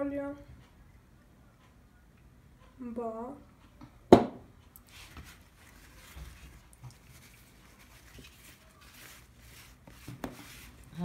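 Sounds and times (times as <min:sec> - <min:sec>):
hand rubbing and patting dough: 0:04.8 - 0:11.0.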